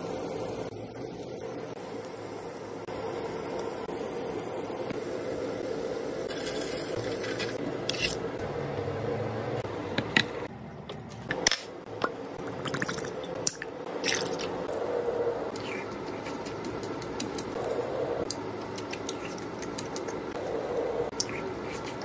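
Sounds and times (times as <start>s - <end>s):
steady hum: 0.0s - 22.0s
food squelching and crunching: 18.3s - 22.0s.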